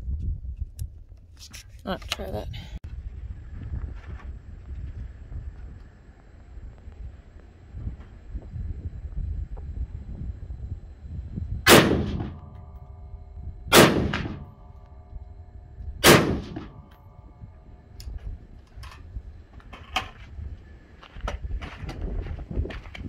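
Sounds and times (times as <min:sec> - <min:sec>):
gunshots: 0:11.7 - 0:12.6, 0:13.7 - 0:14.6, 0:16.0 - 0:17.0.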